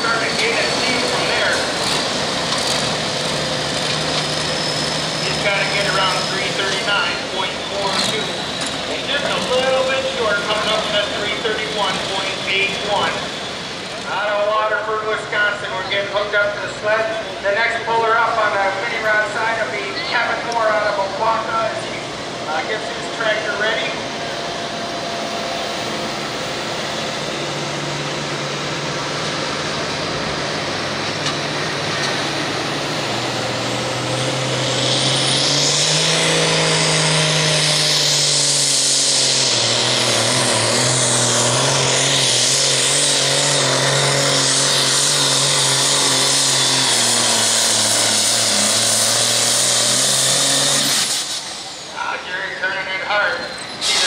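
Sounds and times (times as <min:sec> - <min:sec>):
diesel tractor engine revving: 0:00.0 - 0:54.0
high-pitched turbo whine and hiss: 0:44.5 - 0:54.0.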